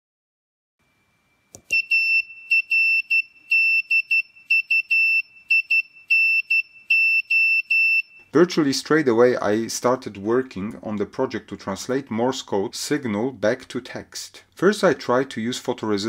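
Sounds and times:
buzzer beeping morse code: 1.7 - 8.3.

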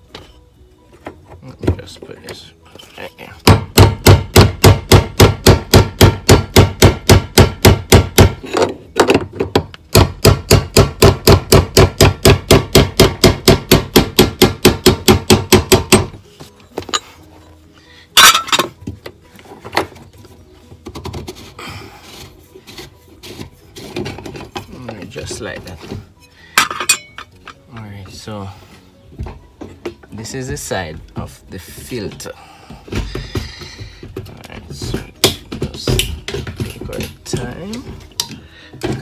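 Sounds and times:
rubbing and handling: 19.2 - 26.3.

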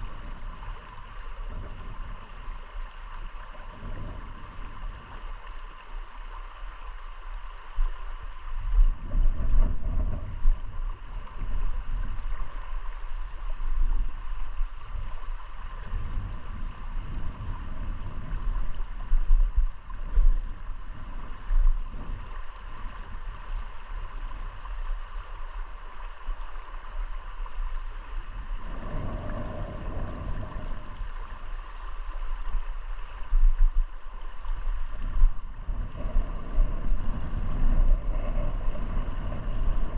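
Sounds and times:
low rumbling water surges: 0.0 - 39.9
river rippling over shallows: 0.0 - 39.9.

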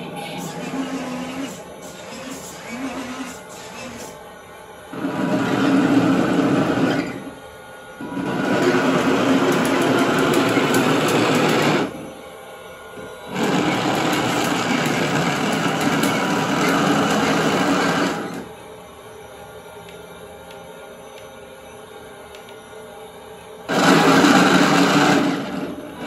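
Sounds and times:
toy tank motors whirring: 13.3 - 18.5.

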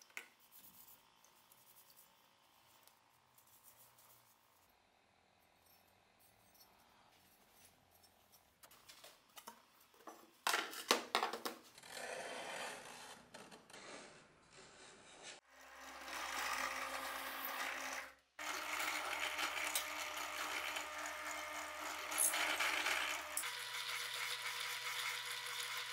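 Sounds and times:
drill press motor running: 15.5 - 25.9.

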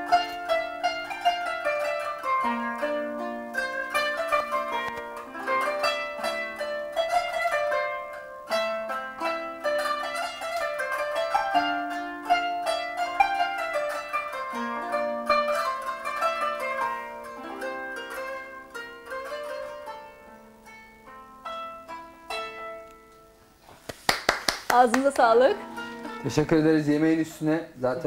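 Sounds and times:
plucked zither: 0.0 - 23.4, 25.1 - 28.0.

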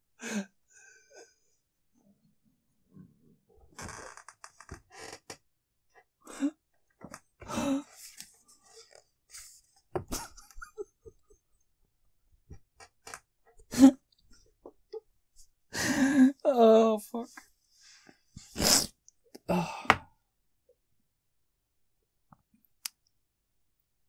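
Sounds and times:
stifled breathless laughter: 8.7 - 11.7.

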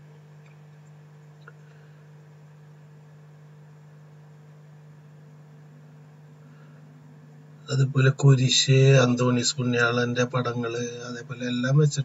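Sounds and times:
low electrical hum with hiss: 0.0 - 12.0.

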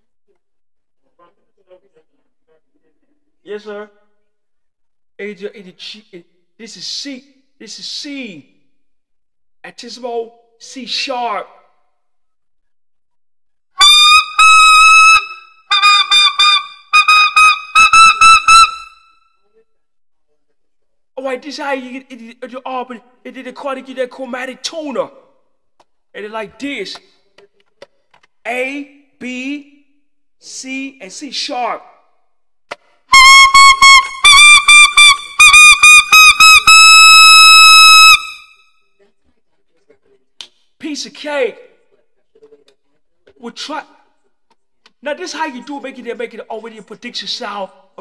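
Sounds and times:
alto saxophone high notes: 33.1 - 38.5.

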